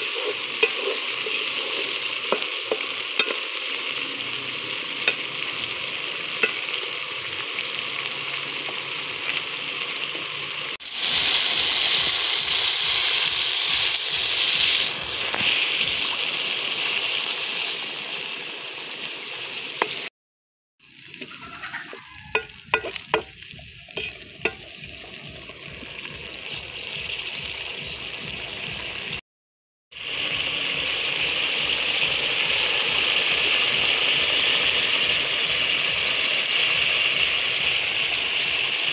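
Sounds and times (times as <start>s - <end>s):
spatula scraping and knocking pot: 0.0s - 3.4s, 21.3s - 23.3s, 24.0s - 24.7s
curry sizzling and bubbling: 0.0s - 20.1s, 20.8s - 29.2s, 29.9s - 38.9s.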